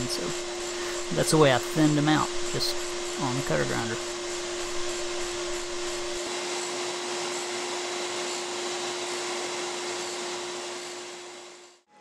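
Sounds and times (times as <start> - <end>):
grinder motor with rushing noise: 0.0 - 11.8.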